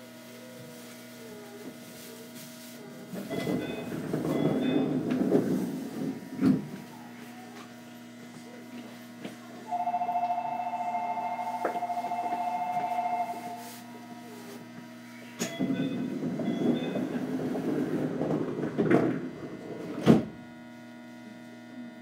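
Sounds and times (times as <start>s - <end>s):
two-tone electronic warning tone: 9.7s - 14.4s.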